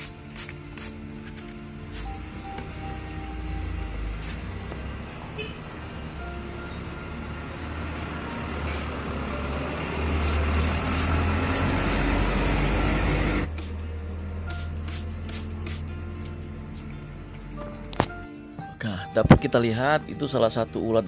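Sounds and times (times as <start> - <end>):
trigger sprayer squirting: 0.0 - 2.2, 10.2 - 12.2, 14.5 - 15.9.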